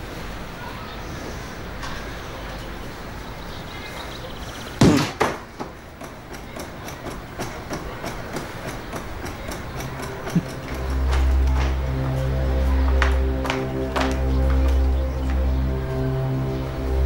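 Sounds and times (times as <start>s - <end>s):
punches thudding on punching bag: 4.8s - 5.7s.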